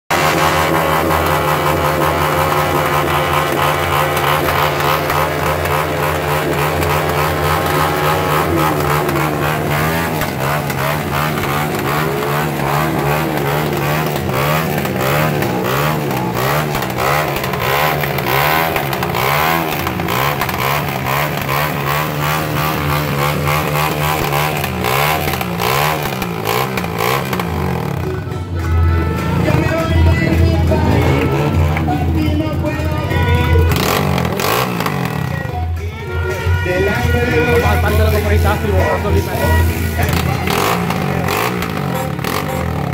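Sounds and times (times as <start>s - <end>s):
motorcycle engines revving: 0.0s - 42.9s
steady engine drone: 0.0s - 42.9s.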